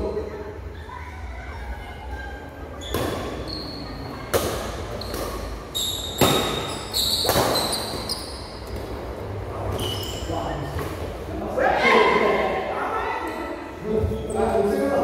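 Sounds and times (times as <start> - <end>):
shoes squeaking on tiled floor: 2.7 - 9.0, 9.6 - 10.8
rackets hitting shuttlecock: 4.3 - 9.0.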